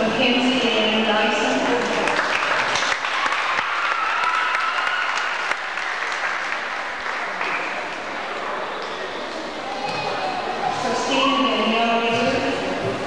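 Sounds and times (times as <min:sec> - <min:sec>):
audience applauding: 0:01.7 - 0:08.4.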